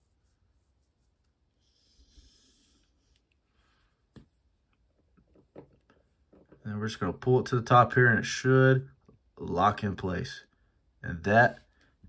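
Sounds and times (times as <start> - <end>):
faint breathy hiss: 1.5 - 4.0.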